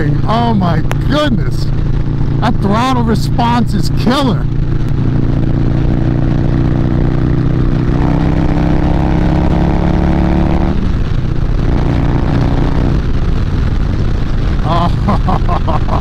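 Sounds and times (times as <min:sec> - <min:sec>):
motorcycle engine under throttle: 0:00.0 - 0:16.0
wind noise: 0:00.0 - 0:16.0.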